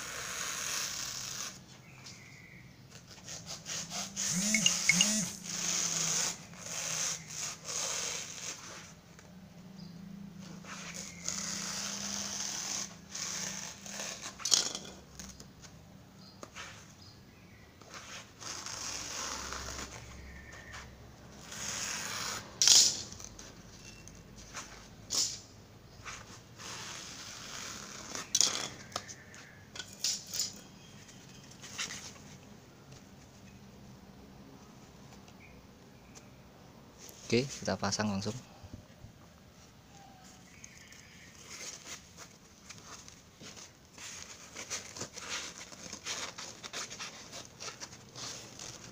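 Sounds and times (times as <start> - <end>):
knife rasping through foam: 3.1 - 9.0, 10.7 - 14.4.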